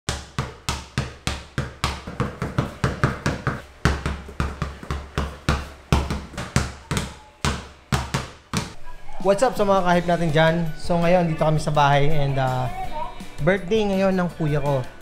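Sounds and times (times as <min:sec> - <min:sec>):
basketballs bouncing on tiled floor: 0:00.1 - 0:08.8.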